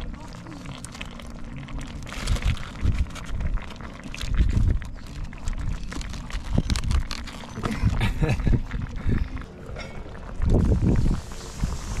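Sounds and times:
wind buffeting microphone: 7.7s - 12.0s.

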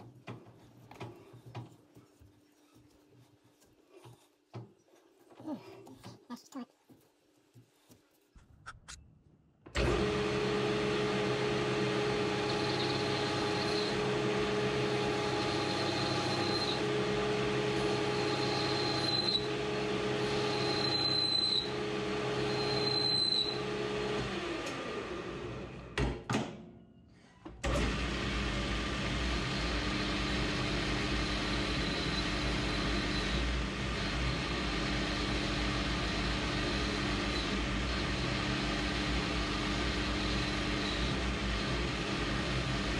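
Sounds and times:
metal lathe motor hum: 9.8s - 25.1s, 28.5s - 42.9s.

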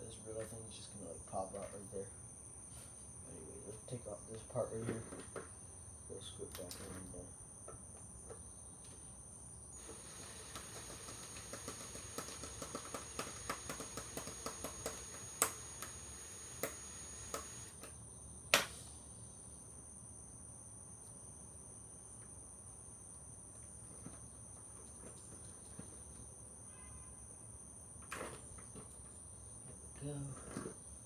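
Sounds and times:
cordless drill clicking: 9.8s - 17.9s.

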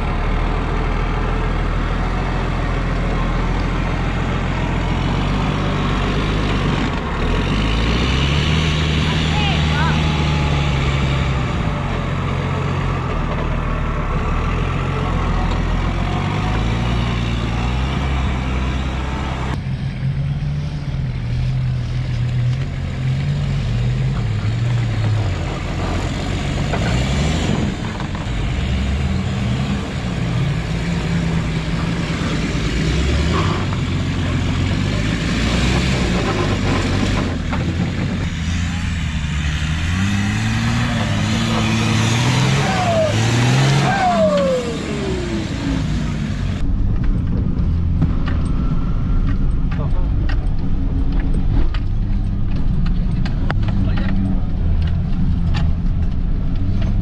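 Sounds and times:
off-road vehicle engine revving: 0.0s - 57.0s.

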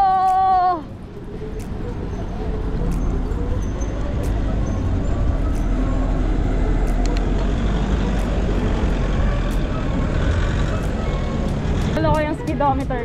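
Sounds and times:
motor traffic passing: 0.3s - 13.0s.

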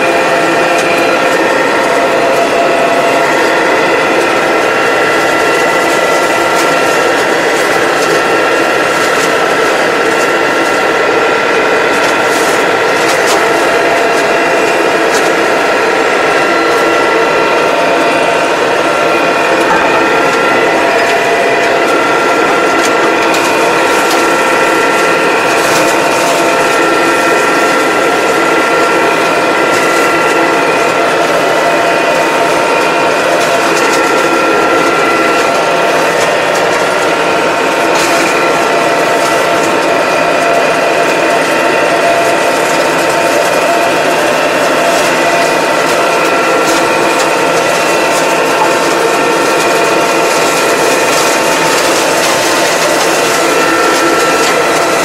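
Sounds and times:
gear whine: 0.0s - 55.0s
tractor engine running under load: 0.0s - 55.0s.

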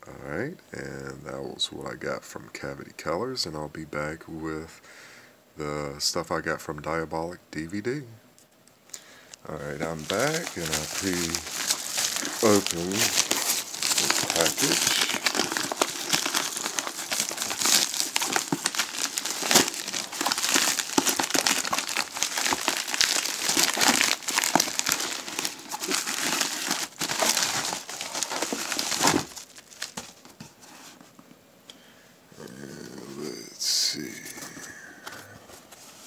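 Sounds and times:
plastic wrap crinkling: 9.5s - 30.5s.

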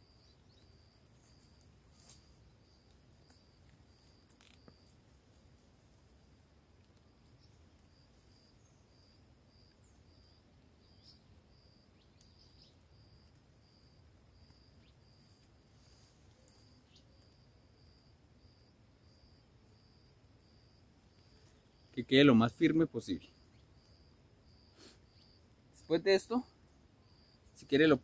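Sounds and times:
insect chirping: 0.0s - 28.0s
bird chirps: 8.2s - 13.2s, 16.4s - 17.2s.

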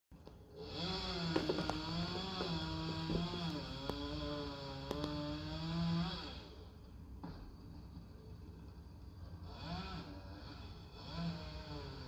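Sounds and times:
chainsaw cutting: 0.5s - 6.7s, 9.4s - 12.0s.

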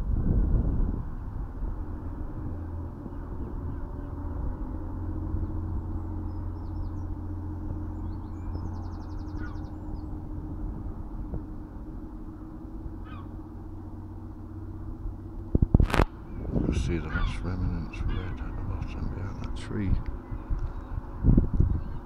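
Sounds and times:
low outdoor rumble: 0.0s - 22.0s
small birds chirping: 5.3s - 10.4s, 12.4s - 13.4s, 16.1s - 22.0s.

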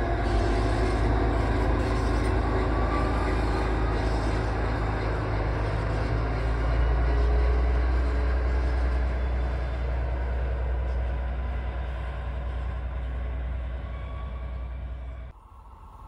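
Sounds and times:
diesel locomotive engine drone: 0.0s - 16.0s.

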